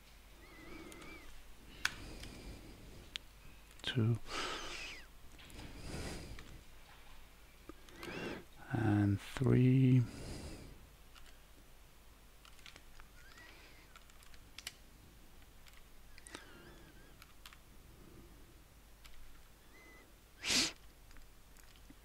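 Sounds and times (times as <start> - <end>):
computer mouse clicks: 0.7 - 2.4, 3.1 - 3.8, 7.7 - 8.2, 11.1 - 11.4, 12.4 - 14.8, 15.4 - 17.6, 19.0 - 19.5, 20.8 - 22.0.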